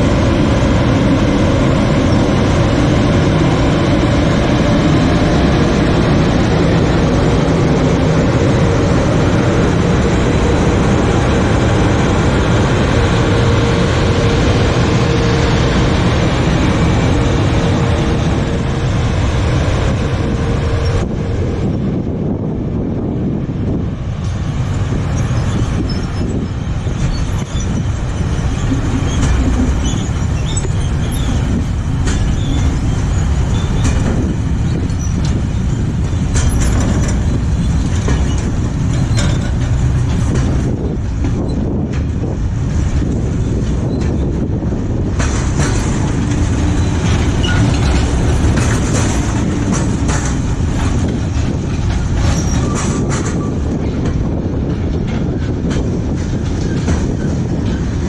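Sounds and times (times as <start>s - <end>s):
train wheels rumbling on rails: 0.0s - 58.0s
wheels clacking over rail joints: 24.1s - 58.0s
high wheel squeal: 25.0s - 39.6s, 46.6s - 50.0s, 51.4s - 53.8s.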